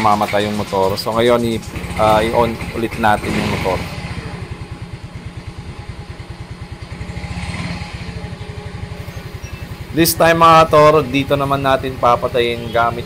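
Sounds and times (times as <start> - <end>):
scooter engine idling: 0.0 - 13.0.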